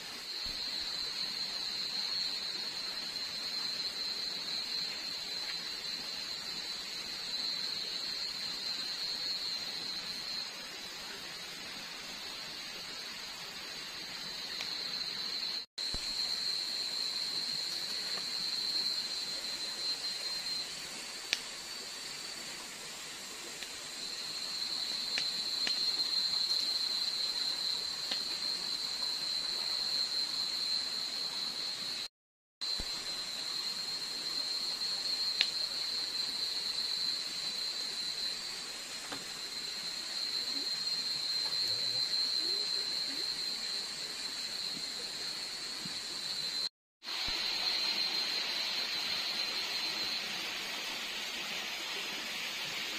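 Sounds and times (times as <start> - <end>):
night insects chorus: 0.0 - 52.9
campfire snapping: 25.1 - 25.9.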